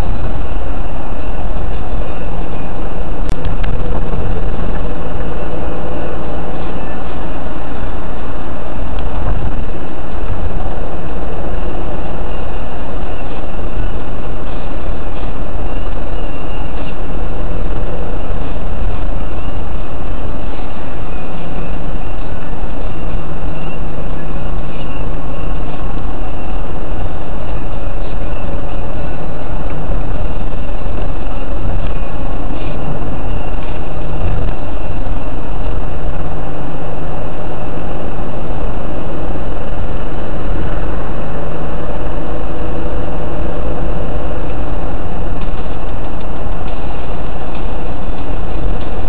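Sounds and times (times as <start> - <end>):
car engine and tyre noise: 0.0 - 49.0.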